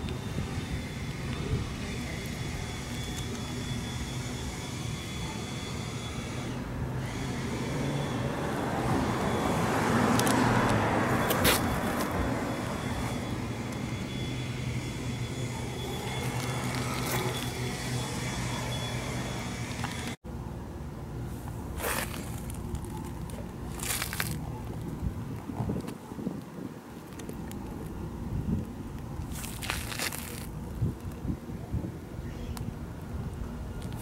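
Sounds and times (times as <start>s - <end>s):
motor vehicle passing by: 6.2s - 20.2s.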